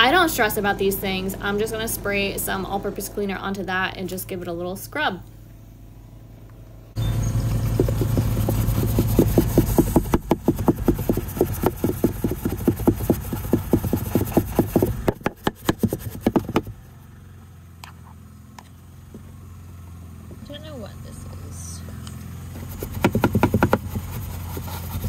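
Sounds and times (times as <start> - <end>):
brush scrubbing plastic: 7.4 - 16.7, 22.5 - 25.0.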